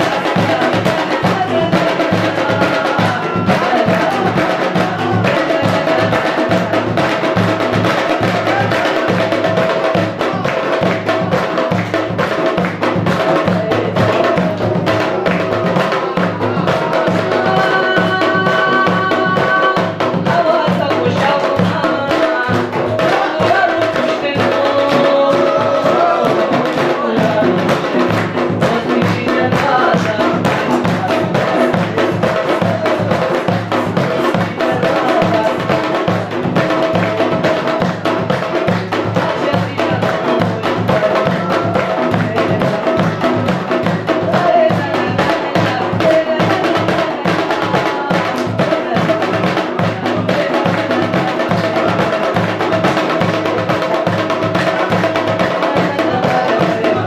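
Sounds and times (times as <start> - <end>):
drums beating fast rhythm: 0.0 - 57.0.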